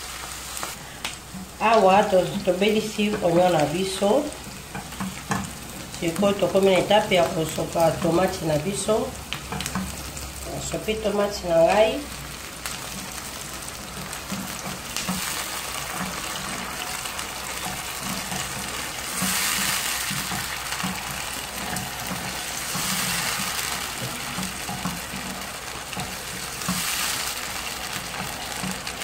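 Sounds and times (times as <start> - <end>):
vegetables sizzling in frying pan: 0.0 - 29.0
wooden spoon stirring: 12.2 - 29.0.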